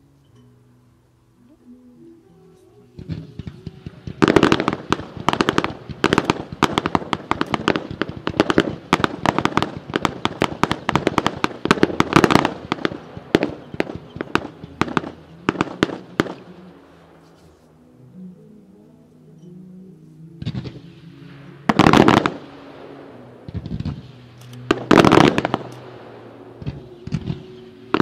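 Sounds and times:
fireworks bangs and crackles: 3.0s - 16.7s, 20.4s - 28.0s.

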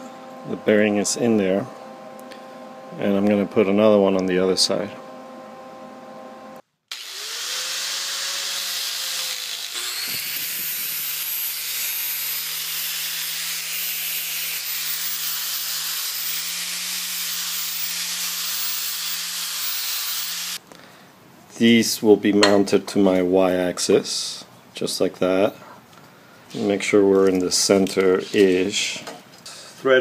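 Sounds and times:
angle grinder grinding steel: 6.9s - 20.6s.

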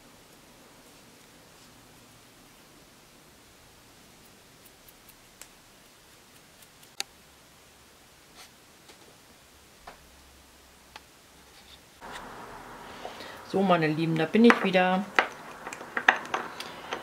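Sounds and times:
objects clicking on glass plate: 14.5s - 17.0s.

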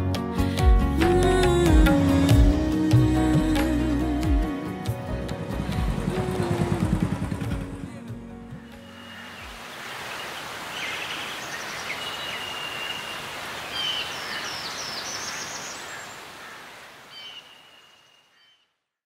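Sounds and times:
birds calling: 8.5s - 18.7s.

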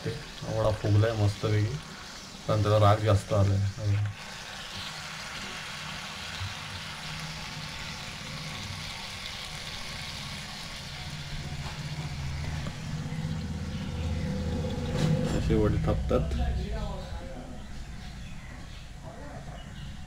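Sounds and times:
deep-frying sizzle in oil: 0.0s - 14.6s
low hum: 10.0s - 20.0s.

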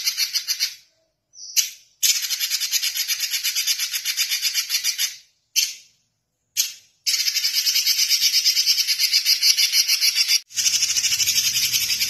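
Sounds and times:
bird singing high trill: 7.1s - 12.0s.

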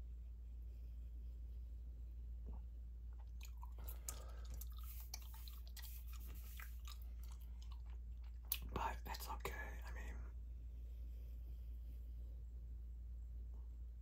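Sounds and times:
steady low hum: 0.0s - 14.0s
gum chewing smacks and clicks: 2.5s - 9.7s.

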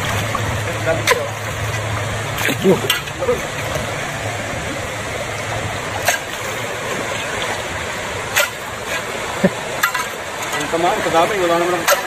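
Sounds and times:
short sharp splashes: 0.0s - 4.2s, 5.4s - 10.7s
stream running over rocks: 0.0s - 12.0s.

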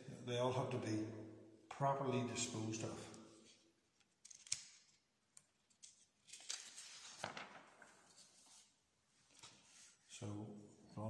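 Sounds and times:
paper pages rustling: 5.7s - 10.0s.

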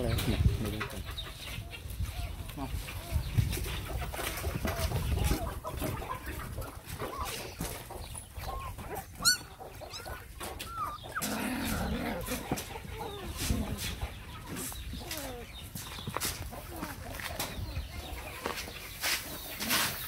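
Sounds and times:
puppies whimpering: 1.1s - 15.7s.

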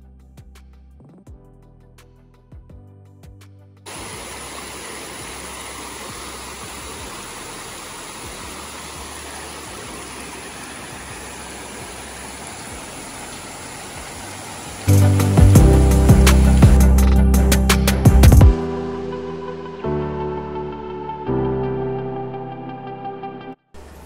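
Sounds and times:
stream water rushing over rock: 3.9s - 18.2s
music with plucked notes: 14.9s - 23.3s.

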